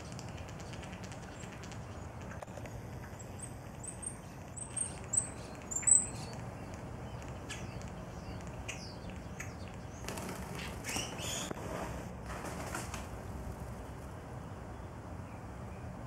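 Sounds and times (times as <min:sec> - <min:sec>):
wings flapping: 0:00.0 - 0:03.2, 0:10.0 - 0:14.2
starlings chirping: 0:00.0 - 0:11.6.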